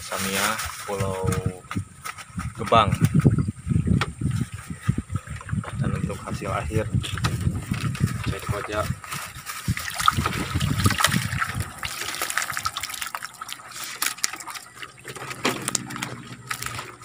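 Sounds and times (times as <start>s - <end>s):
water dripping off a net: 7.2s - 17.0s
water splashing off a net: 7.3s - 17.0s.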